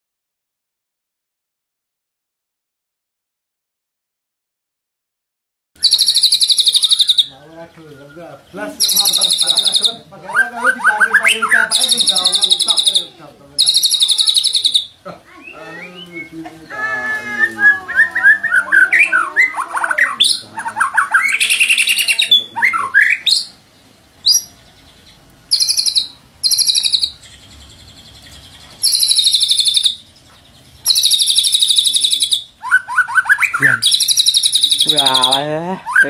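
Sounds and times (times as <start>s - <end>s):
bird singing whistled phrases: 5.8s - 16.4s, 17.2s - 23.6s, 24.2s - 24.6s, 25.5s - 30.1s, 30.8s - 36.0s
harsh buzzy bird trills: 5.8s - 36.0s.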